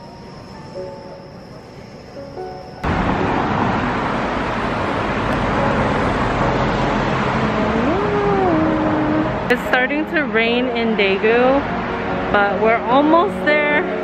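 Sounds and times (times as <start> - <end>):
passing cars: 2.4 - 14.0.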